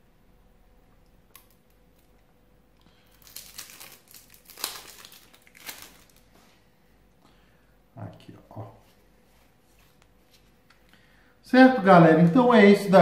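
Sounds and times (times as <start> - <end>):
plastic wrapping crinkling: 2.9 - 6.4.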